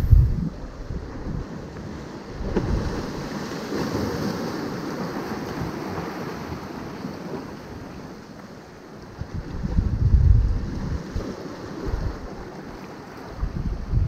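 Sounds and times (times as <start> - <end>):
wind buffeting microphone: 0.0 - 3.3, 9.1 - 12.6, 13.2 - 14.0
waves splashing over rocks: 0.0 - 14.0.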